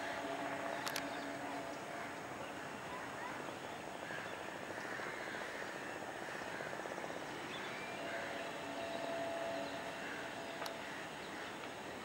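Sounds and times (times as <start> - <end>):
steady tones: 0.0 - 3.5, 6.8 - 12.0
distant engines humming: 0.0 - 12.0.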